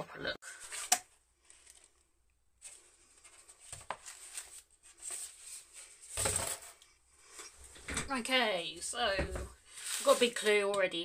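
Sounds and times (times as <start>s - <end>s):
paper and cardboard rustling: 2.6s - 8.0s, 9.0s - 11.0s.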